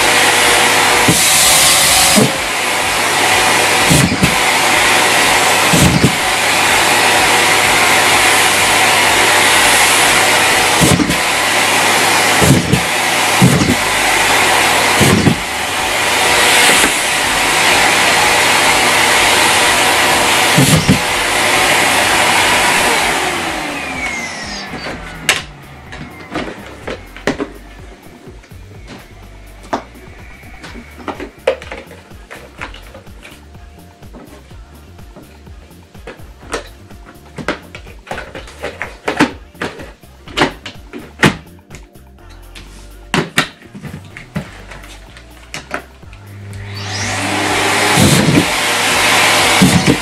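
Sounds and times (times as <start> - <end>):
motor spinning down whine: 0.0 - 31.5, 46.1 - 50.0
vacuum cleaner running: 0.0 - 41.4, 43.2 - 50.0.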